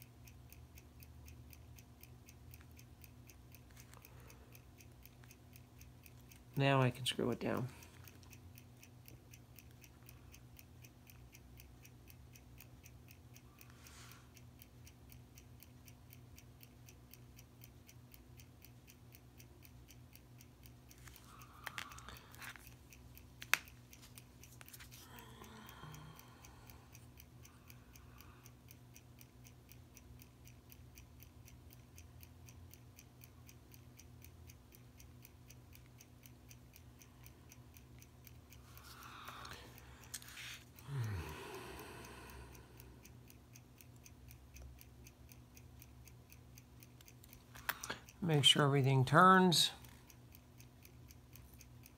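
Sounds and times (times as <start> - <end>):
fast watch ticking: 0.0 - 51.9
low steady hum: 0.0 - 51.9
soft handling noises: 20.9 - 25.1.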